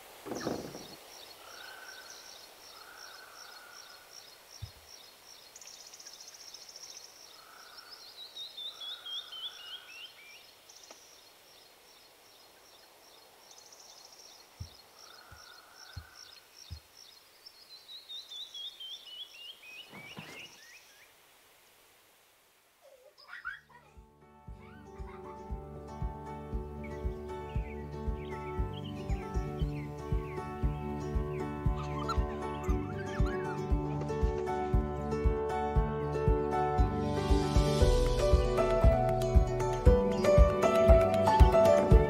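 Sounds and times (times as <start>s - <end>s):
birds chirping: 0.0s - 21.2s, 22.8s - 36.4s, 37.9s - 42.0s
low buzzy bird calls: 0.0s - 21.8s, 22.8s - 24.0s, 26.8s - 34.0s
soft low thumps: 24.0s - 42.0s.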